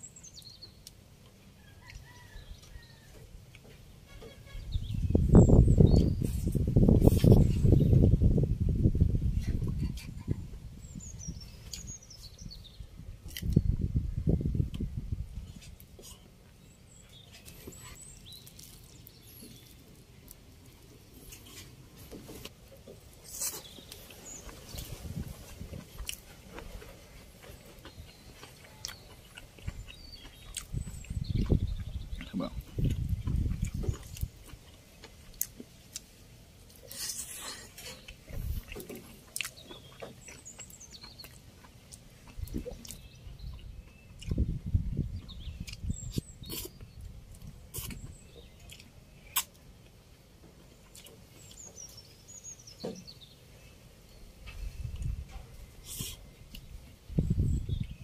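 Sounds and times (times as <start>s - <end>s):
person chewing food: 15.5s - 44.5s, 45.2s - 50.0s, 50.6s - 51.7s.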